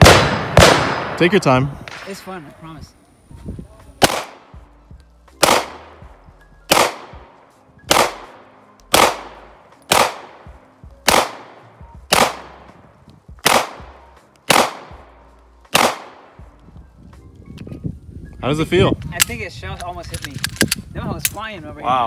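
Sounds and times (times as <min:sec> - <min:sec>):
handgun shots: 0:04.0 - 0:04.4, 0:05.4 - 0:05.9, 0:06.7 - 0:07.2, 0:07.9 - 0:08.3, 0:08.9 - 0:10.4, 0:11.0 - 0:11.5, 0:12.1 - 0:12.5, 0:13.4 - 0:13.9, 0:14.5 - 0:14.9, 0:15.7 - 0:16.2.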